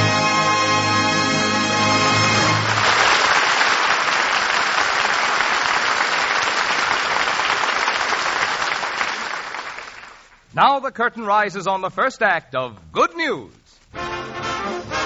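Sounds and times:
orchestra held chord: 0:00.0 - 0:02.9
audience applauding: 0:01.8 - 0:10.4.

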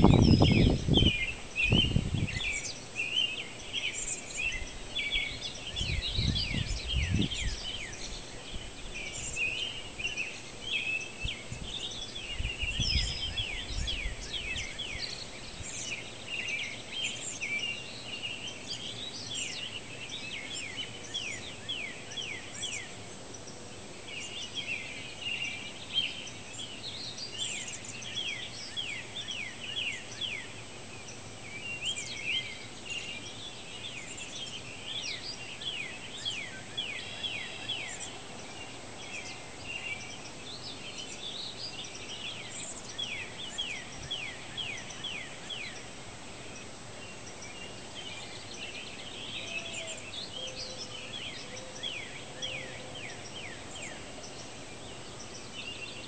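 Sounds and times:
low rumbling on microphone: 0:00.0 - 0:02.5, 0:05.8 - 0:07.7
birds chirping and trilling: 0:00.0 - 0:56.0.

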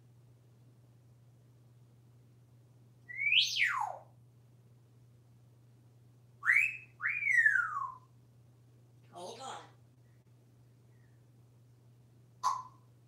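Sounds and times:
parrot whistling: 0:03.1 - 0:04.1, 0:06.4 - 0:08.1, 0:12.4 - 0:12.8.

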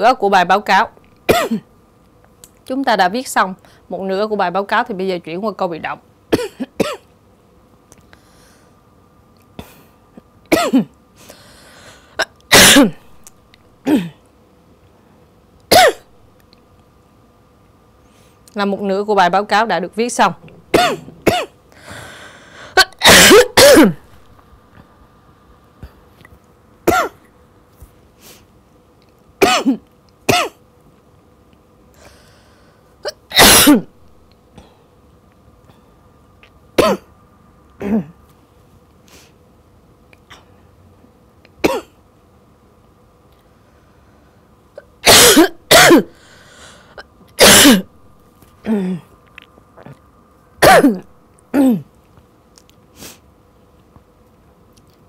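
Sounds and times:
woman coughing: 0:01.3 - 0:01.7, 0:06.3 - 0:07.1, 0:10.5 - 0:11.0, 0:12.2 - 0:13.0, 0:13.8 - 0:14.2, 0:15.7 - 0:16.1, 0:20.7 - 0:21.6, 0:22.7 - 0:24.1, 0:26.9 - 0:27.2, 0:29.4 - 0:30.6, 0:33.1 - 0:33.9, 0:36.8 - 0:37.1, 0:37.8 - 0:38.2, 0:41.6 - 0:42.0, 0:45.0 - 0:46.2, 0:47.4 - 0:47.9, 0:50.6 - 0:51.9.

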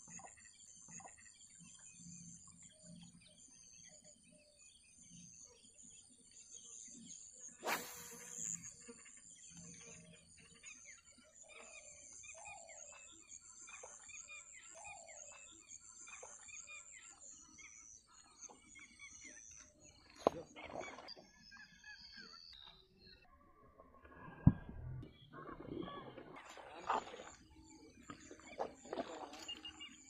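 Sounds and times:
birds chirping: 0:24.5 - 0:30.0.

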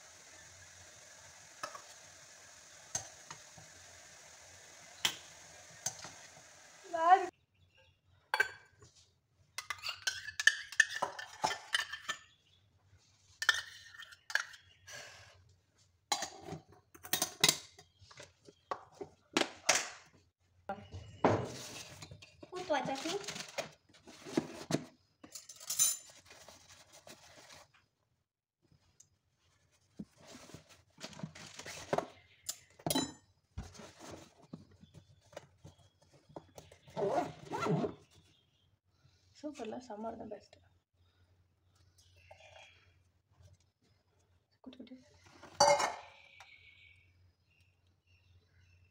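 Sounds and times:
metal containers clinking and clattering: 0:21.4 - 0:26.7, 0:45.3 - 0:46.2.

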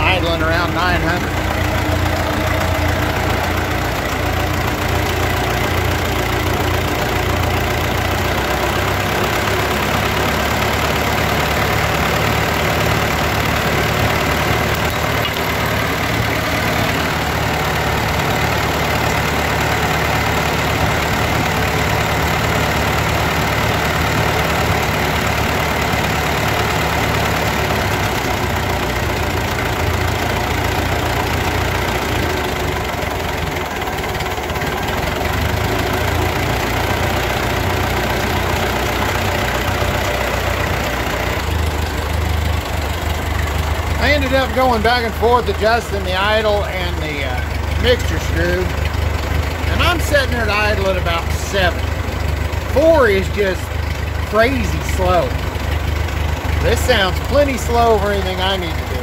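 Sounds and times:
tractor engine idling: 0:00.0 - 0:59.0.

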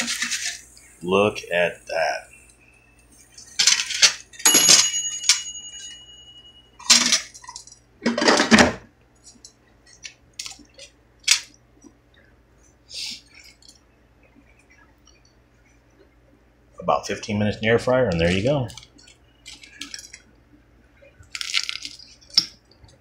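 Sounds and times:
kitchenware clinking and clattering: 0:03.3 - 0:10.1
ringing metallic clank: 0:04.5 - 0:07.3.

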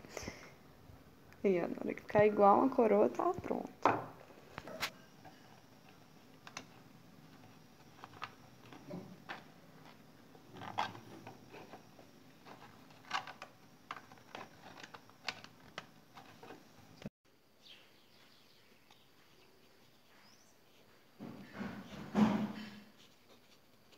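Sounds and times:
packaging clicking and crackling: 0:05.2 - 0:16.6.

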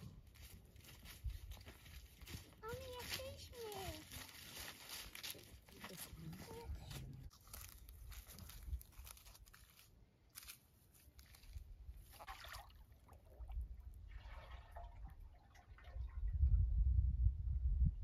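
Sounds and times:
water gurgling into jug: 0:12.1 - 0:16.5.

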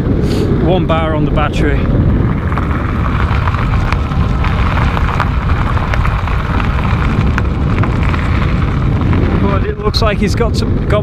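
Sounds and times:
bike tyres hissing on rough track: 0:00.0 - 0:00.7, 0:01.8 - 0:10.8
wind buffeting microphone: 0:00.0 - 0:11.0
faint ticks of grit: 0:02.4 - 0:10.5.

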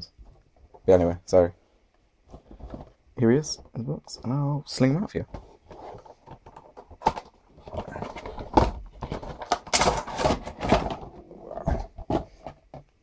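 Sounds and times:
cardboard and plastic scraping: 0:02.3 - 0:03.8, 0:05.1 - 0:12.9.

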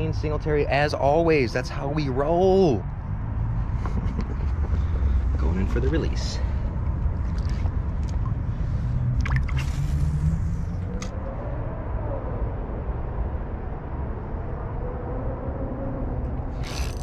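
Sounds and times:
steady low rumble: 0:00.0 - 0:17.0
water splashes and drips: 0:06.8 - 0:10.3.

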